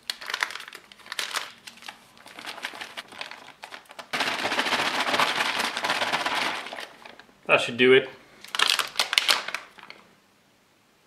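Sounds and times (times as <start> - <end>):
plastic pouch crinkling: 0.0 - 7.4, 8.4 - 10.0
pouch shaken rustling: 2.2 - 7.2.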